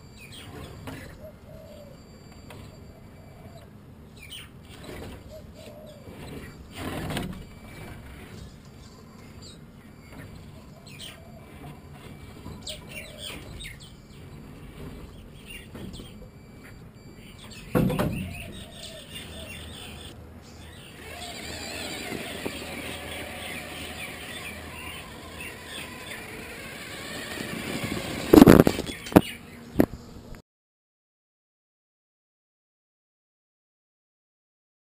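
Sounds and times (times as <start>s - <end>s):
birds chirping faintly: 0.0s - 30.2s
toy truck motor whining: 4.2s - 17.7s, 18.3s - 29.2s.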